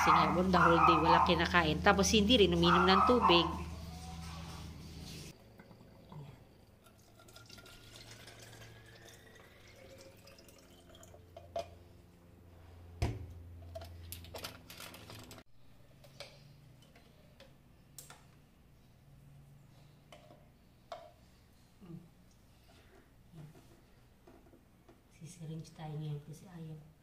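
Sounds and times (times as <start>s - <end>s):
liquid pouring into a glass: 5.6s - 11.3s.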